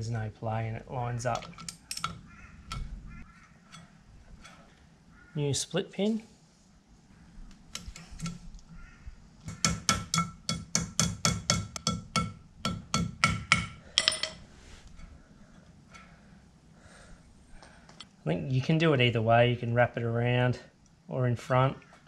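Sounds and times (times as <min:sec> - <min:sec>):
hammer tapping metal pin: 0:09.4 - 0:14.4.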